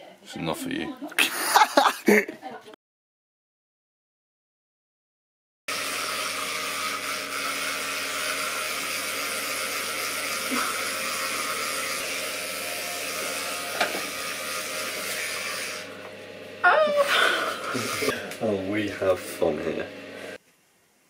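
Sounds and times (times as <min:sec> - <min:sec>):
small motor whirring: 0:05.7 - 0:20.4.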